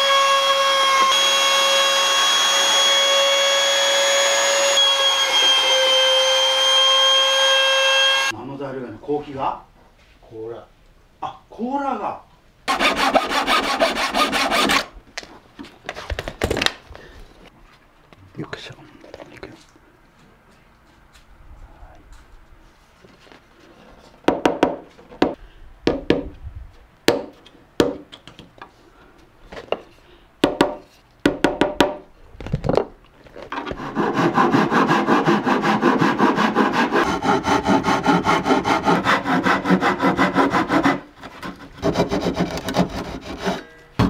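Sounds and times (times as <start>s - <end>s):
hand tool scraping wood: 12.7s - 14.9s, 33.5s - 43.7s.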